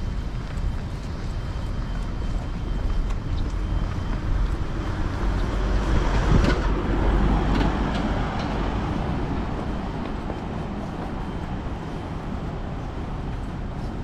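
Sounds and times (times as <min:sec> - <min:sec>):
passing vehicles rumble: 0:00.0 - 0:14.0.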